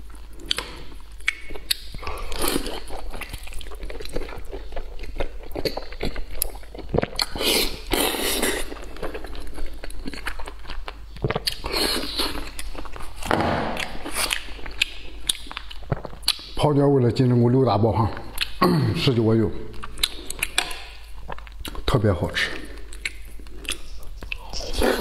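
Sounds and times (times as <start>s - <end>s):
man chewing food: 0.0s - 16.6s, 18.1s - 18.6s, 19.7s - 21.9s, 22.5s - 25.0s
mouth smacks and clicks: 0.4s - 2.2s, 13.6s - 16.6s, 18.3s - 18.6s, 19.7s - 21.9s.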